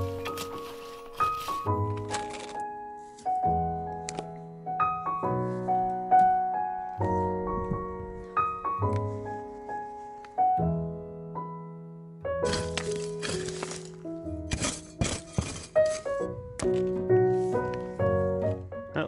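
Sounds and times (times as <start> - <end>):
piano chords ringing: 0.0 - 12.5.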